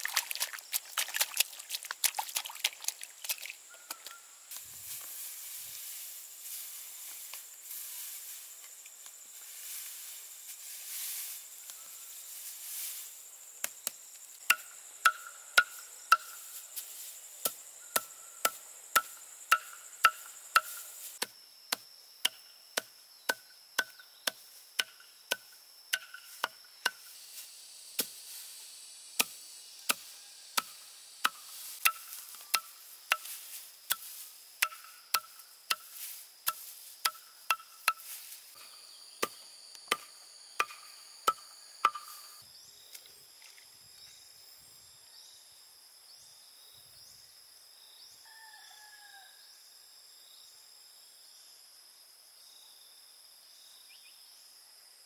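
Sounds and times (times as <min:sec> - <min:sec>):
blade chopping dry straw: 0:12.4 - 0:27.2, 0:28.0 - 0:28.4, 0:29.2 - 0:42.3.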